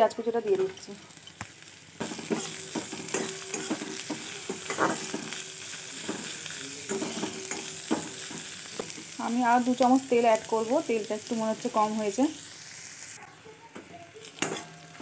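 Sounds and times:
onion sizzling in oil: 0.0 - 15.0
spatula scraping a pan: 2.0 - 9.2.

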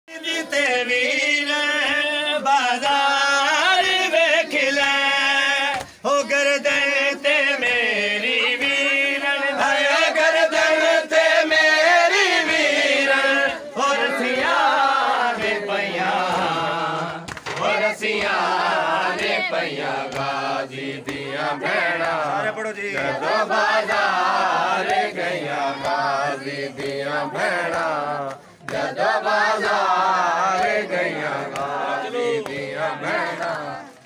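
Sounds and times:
men chanting a lament: 0.1 - 34.0.

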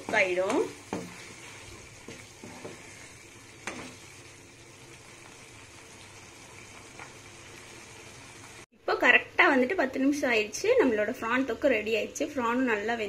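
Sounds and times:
wooden spatula knocking on pan: 0.0 - 1.3
curry sizzling and bubbling: 0.0 - 8.8.

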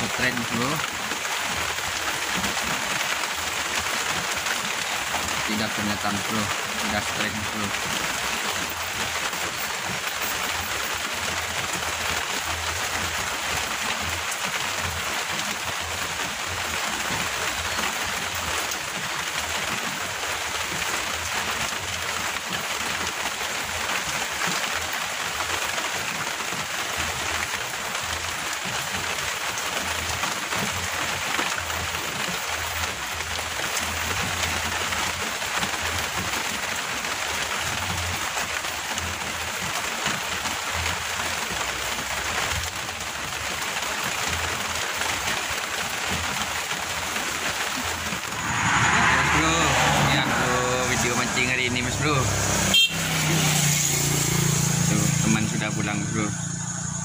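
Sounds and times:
heavy rain falling: 0.0 - 57.0
low rumble: 48.0 - 51.8.

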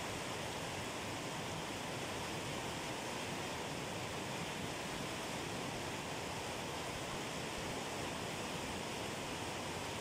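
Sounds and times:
river rushing over rocks: 0.0 - 10.0.

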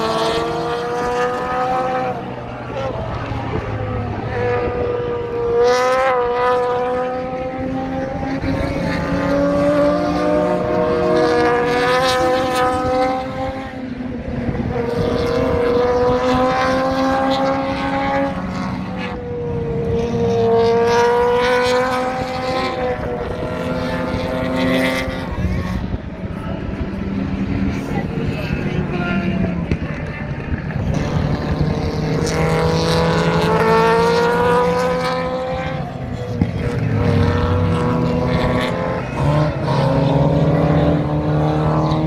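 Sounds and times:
race car engines revving: 0.0 - 42.0.

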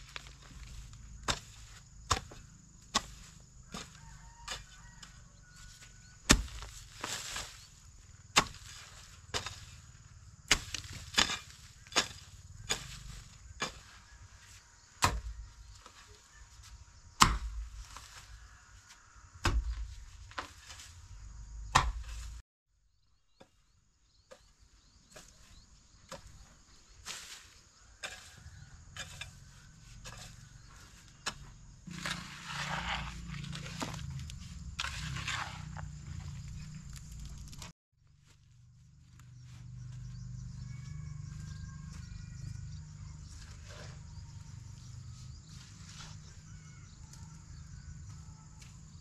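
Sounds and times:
hand tool striking blows: 10.5 - 13.9
dull thud: 17.2 - 17.8, 19.4 - 20.5, 21.6 - 22.4.

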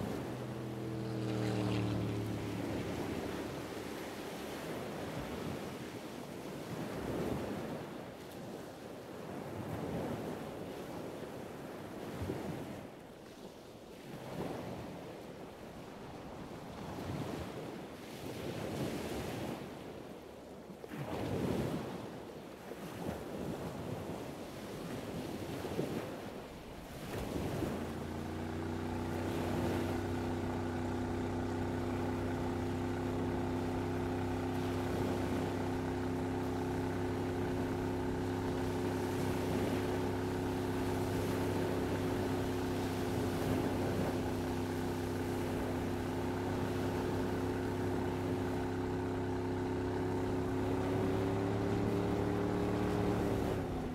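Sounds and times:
motorboat engine humming: 0.0 - 7.4, 26.4 - 53.9
waves washing: 0.0 - 20.2, 20.8 - 53.9.

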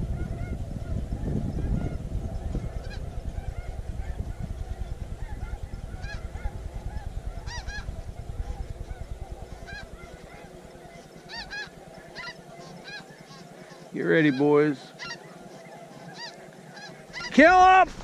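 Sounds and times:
low rumble: 0.0 - 12.2
geese honking: 0.0 - 18.0.

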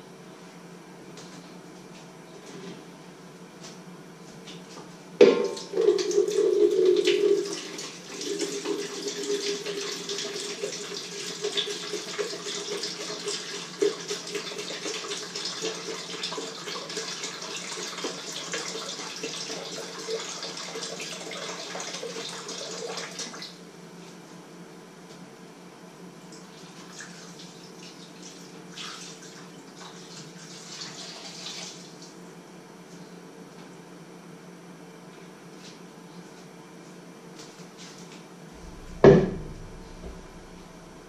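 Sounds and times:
liquid pouring into plastic jug: 5.2 - 16.2.

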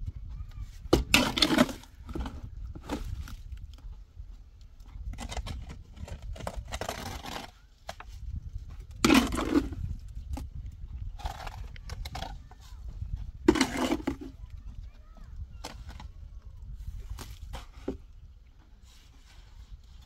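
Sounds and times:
shovel scraping wet mortar: 1.0 - 3.3, 5.1 - 8.1, 8.8 - 9.9, 13.4 - 14.3.

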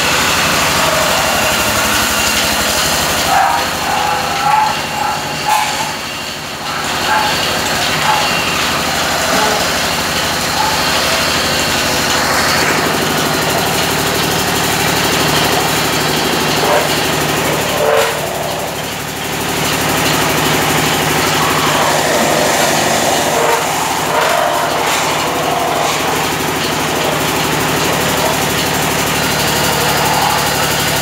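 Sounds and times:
lathe machine hum with hiss: 0.0 - 31.0.

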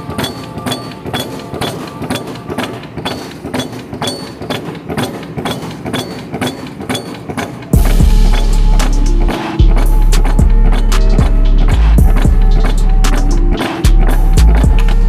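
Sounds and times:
press ram striking: 0.0 - 15.0.

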